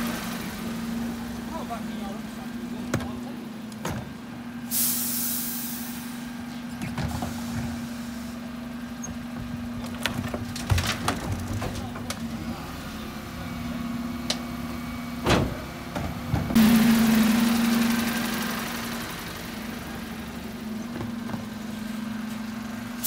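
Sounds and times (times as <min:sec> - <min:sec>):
truck engine humming: 0:00.0 - 0:23.0
bins knocking: 0:09.1 - 0:12.3.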